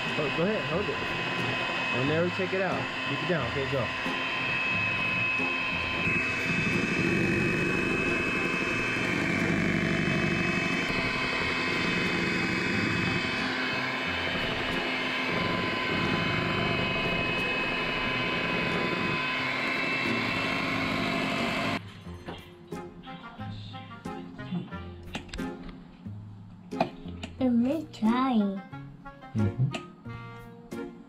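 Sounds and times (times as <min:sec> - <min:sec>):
electric hand mixer whining: 0:00.0 - 0:21.8.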